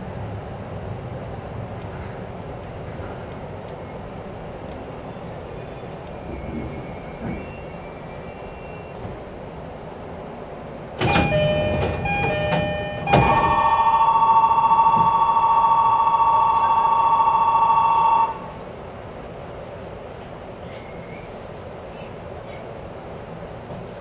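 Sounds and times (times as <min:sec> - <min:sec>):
train doors clattering: 0:11.0 - 0:19.5
two-tone warbling electronic signal: 0:11.3 - 0:18.5.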